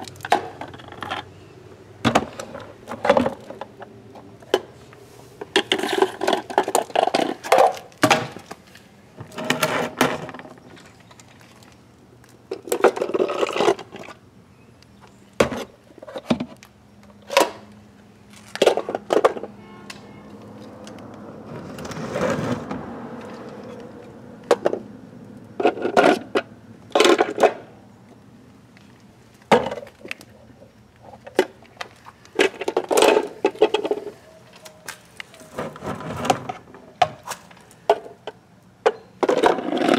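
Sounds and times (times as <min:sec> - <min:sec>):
plastic toys scraping on concrete: 0:04.5 - 0:11.8, 0:12.5 - 0:14.2, 0:21.5 - 0:23.8, 0:25.6 - 0:27.7, 0:31.0 - 0:39.9.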